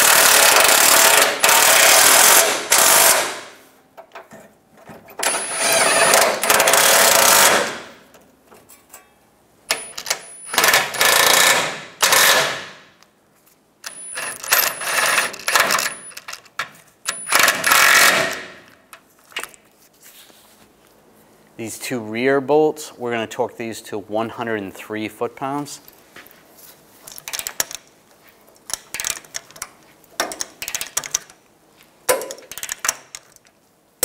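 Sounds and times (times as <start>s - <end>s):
impact wrench hammering bolts: 0.0s - 3.4s, 5.2s - 8.0s, 9.7s - 12.9s, 13.8s - 18.7s, 28.6s - 31.3s.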